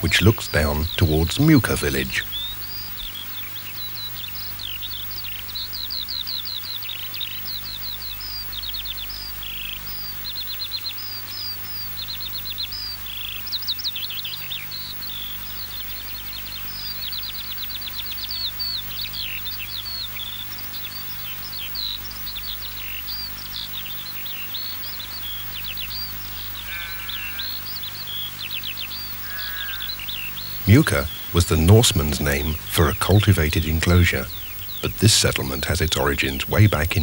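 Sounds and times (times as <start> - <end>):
faint low hum: 0.0 - 37.0
songbirds chirping: 0.0 - 37.0.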